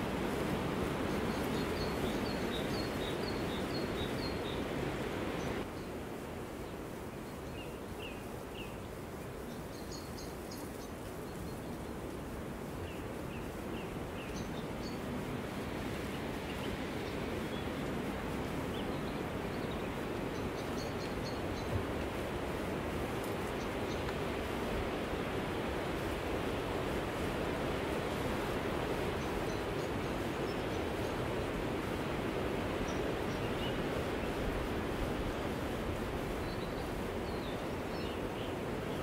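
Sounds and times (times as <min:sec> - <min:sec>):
outdoor ambience hiss: 0:00.0 - 0:39.0
small birds chirping: 0:00.9 - 0:05.9, 0:12.8 - 0:22.2.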